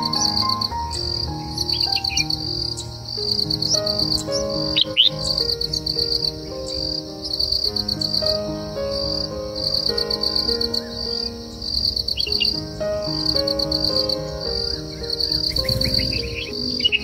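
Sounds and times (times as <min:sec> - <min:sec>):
crickets chirping: 0:00.0 - 0:17.0
soft background music: 0:00.0 - 0:17.0
short rising bird chirps: 0:15.3 - 0:17.0.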